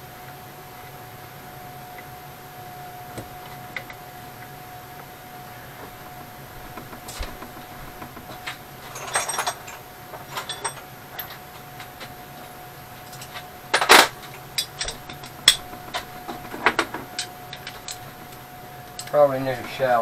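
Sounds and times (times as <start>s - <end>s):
faint steady tone: 0.0s - 20.0s
hand tools clinking and rattling: 5.6s - 20.0s.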